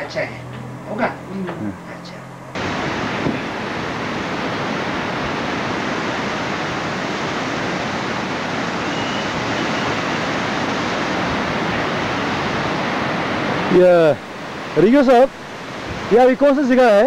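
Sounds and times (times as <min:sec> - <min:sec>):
river rushing over rapids: 0:02.4 - 0:17.0.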